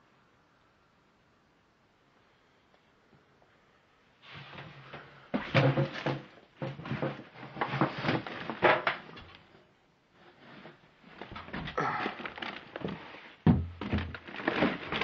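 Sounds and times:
junk and wood knocking and creaking: 4.9 - 9.4, 11.2 - 15.0.

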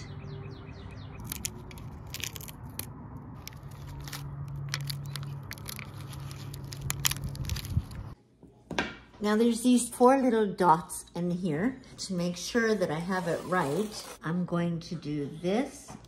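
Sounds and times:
tape peeling and crumpling: 1.2 - 8.2.

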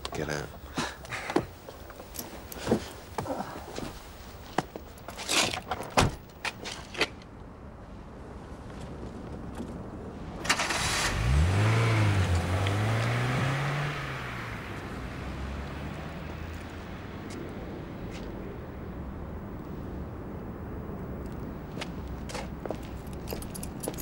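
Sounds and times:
car engine starting and idling: 10.4 - 17.3.

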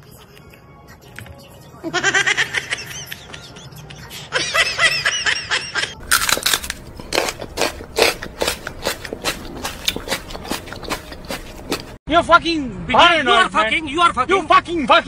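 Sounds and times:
woman laughing: 1.8 - 6.0.

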